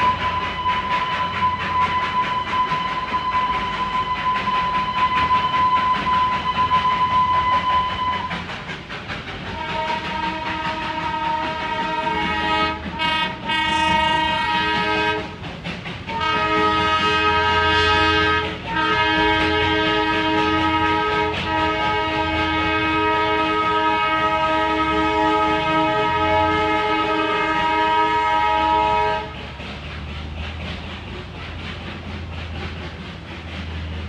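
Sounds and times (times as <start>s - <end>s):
chord whistle: 0.0s - 8.4s
steady high whistle tone: 0.0s - 8.4s
steam train rapid chuffing: 0.0s - 34.0s.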